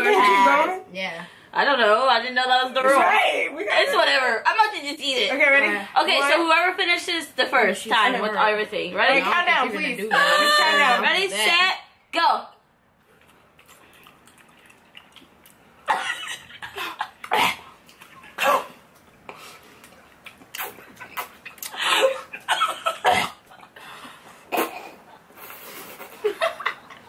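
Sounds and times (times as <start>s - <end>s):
women coughing: 15.9s - 17.7s, 18.3s - 18.8s, 21.8s - 23.4s
laughter: 26.0s - 27.0s.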